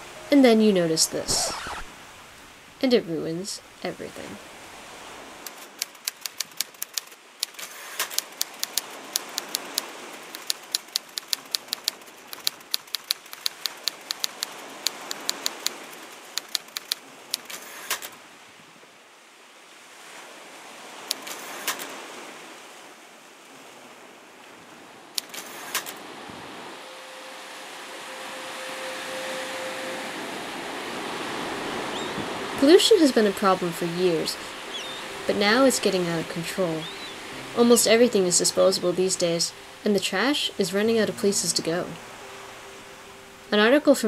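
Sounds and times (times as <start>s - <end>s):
soft rushing background: 25.1s - 44.0s.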